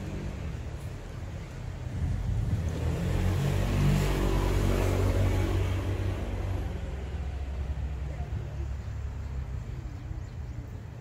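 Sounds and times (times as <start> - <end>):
vehicle engine rumble passing: 0.0 - 11.0.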